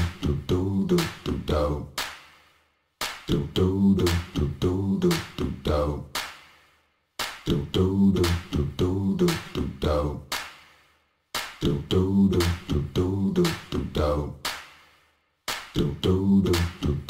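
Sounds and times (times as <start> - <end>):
a cappella vocal singing: 0.0 - 2.1, 3.2 - 6.2, 7.4 - 10.4, 11.6 - 14.6, 15.7 - 17.0
vocal percussion beats: 0.0 - 17.0.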